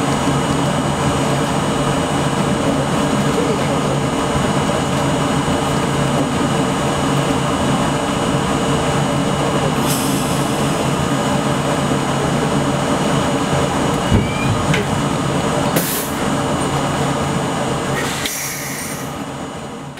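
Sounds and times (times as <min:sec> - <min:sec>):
subway motors and ventilation hum: 0:00.0 - 0:19.9
sharp hiss of air: 0:09.8 - 0:10.9, 0:18.0 - 0:19.2
short air hiss: 0:18.0 - 0:19.1.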